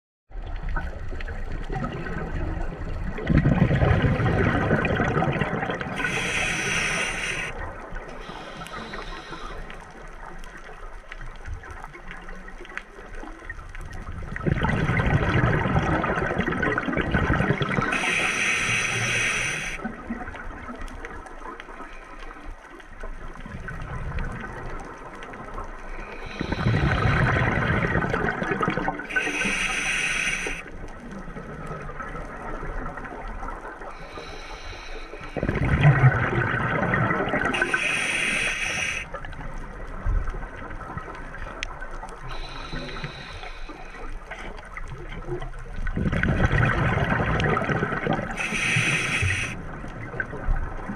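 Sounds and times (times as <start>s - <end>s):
exhaled breath bubbling underwater: 1.7s - 10.0s, 14.3s - 20.0s, 25.9s - 30.7s, 33.8s - 39.3s, 42.1s - 44.6s, 45.8s - 50.9s
regulator hissing inhale: 6.0s - 7.6s, 8.2s - 10.2s, 17.8s - 19.8s, 25.9s - 27.4s, 29.1s - 30.7s, 34.0s - 35.5s, 37.6s - 39.2s, 42.3s - 44.4s, 48.3s - 49.6s.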